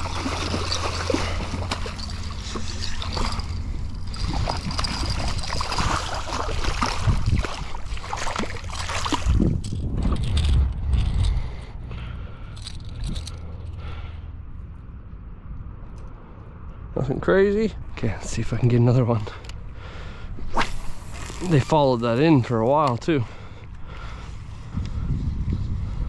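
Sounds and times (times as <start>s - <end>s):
shallow water sloshing and splashing: 0.0s - 10.6s
steady low rumble: 0.0s - 26.0s.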